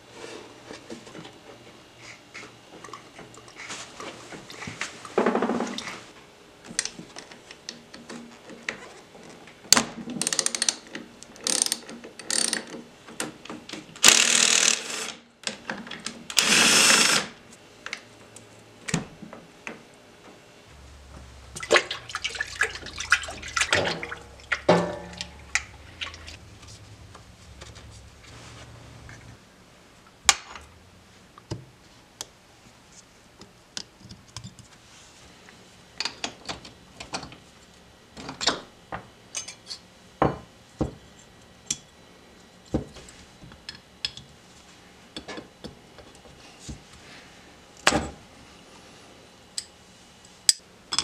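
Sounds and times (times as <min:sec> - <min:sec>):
cordless drill driver: 0:14.0 - 0:15.2, 0:16.3 - 0:17.3
parts washer pump humming: 0:20.7 - 0:29.4
solvent splashing: 0:20.8 - 0:26.4
metal tools clanking: 0:20.8 - 0:28.1.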